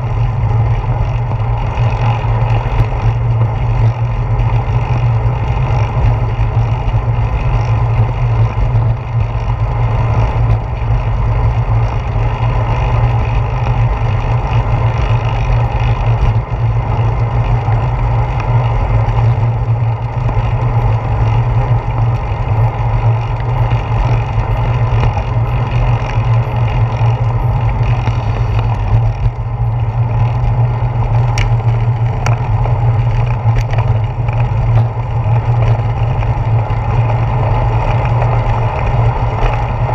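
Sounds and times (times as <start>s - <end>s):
bicycle road rumble: 0.0s - 39.9s.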